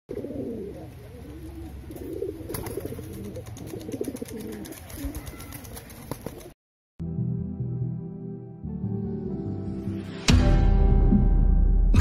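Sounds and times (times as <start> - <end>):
pigeons cooing: 0.1 - 6.5
wings flapping: 1.9 - 6.6.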